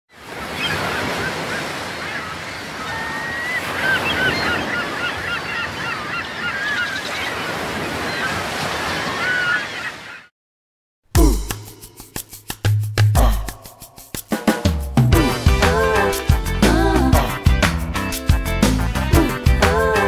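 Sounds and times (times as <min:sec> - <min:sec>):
ocean surf washing: 0:00.1 - 0:10.2
short bird calls: 0:00.5 - 0:08.4.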